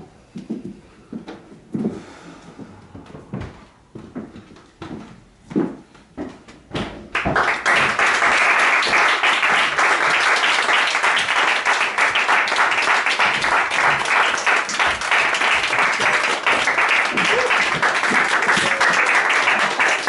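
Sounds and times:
audience clapping: 7.1s - 20.0s.

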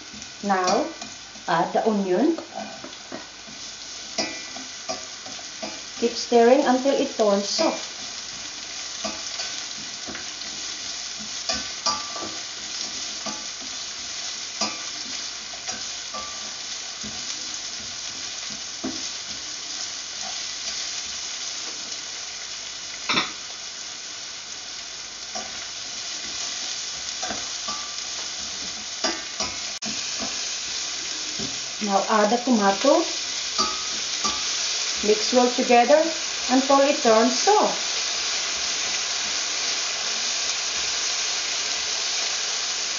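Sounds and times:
onions sizzling in hot oil: 0.0s - 42.9s
spatula scraping and tapping pan: 2.4s - 6.0s, 7.5s - 13.8s, 25.3s - 30.4s, 33.5s - 35.0s.

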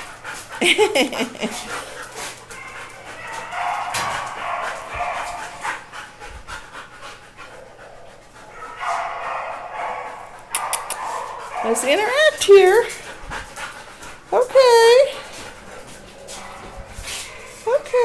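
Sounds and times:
dog panting: 0.0s - 18.0s.

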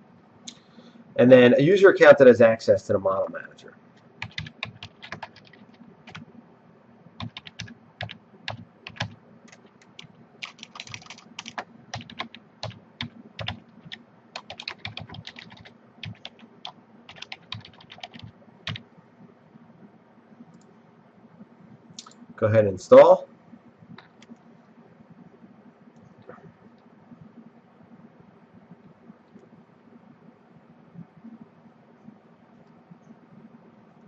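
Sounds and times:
typing on computer keyboard: 4.2s - 6.3s, 7.2s - 18.8s.

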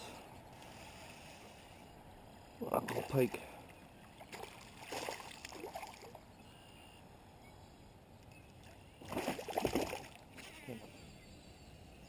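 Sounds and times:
fish thrashing and splashing water: 4.3s - 6.1s, 9.0s - 10.2s.

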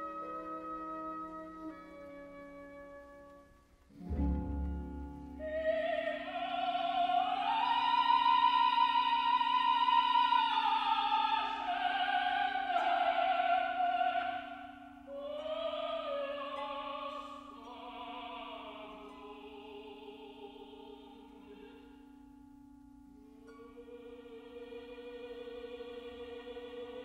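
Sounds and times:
classical accompaniment: 0.0s - 7.6s
operatic singing voice: 5.4s - 22.0s, 23.6s - 27.0s.

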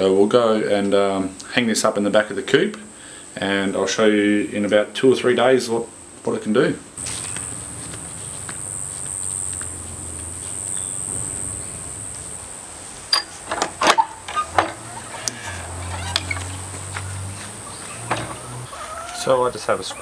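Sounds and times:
high insect drone: 7.0s - 20.0s.

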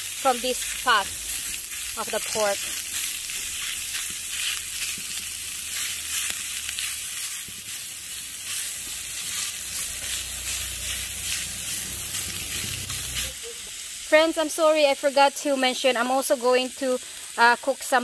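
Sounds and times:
chopsticks stirring: 0.0s - 13.4s
pork sizzling in a pan: 0.0s - 18.0s.

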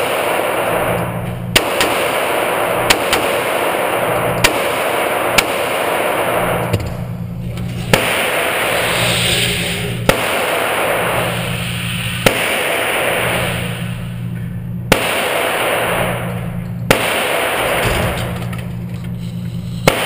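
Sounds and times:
pistol shots: 0.0s - 7.0s, 7.9s - 9.0s, 10.0s - 11.6s, 12.2s - 14.1s, 14.9s - 18.5s
steady rushing noise with low hum: 0.0s - 20.0s.

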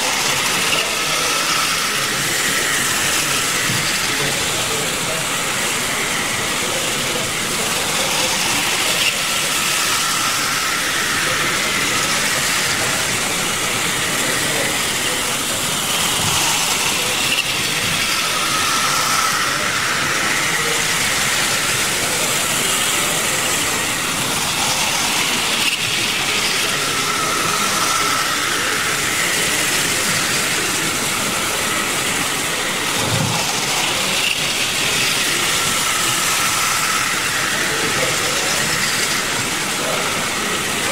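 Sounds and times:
model train motor whirring: 0.0s - 40.9s.

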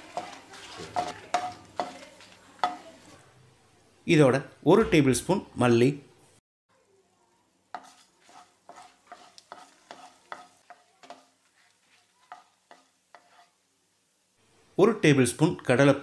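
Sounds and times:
spatula scraping spices in pan: 0.0s - 3.2s, 7.7s - 13.7s.

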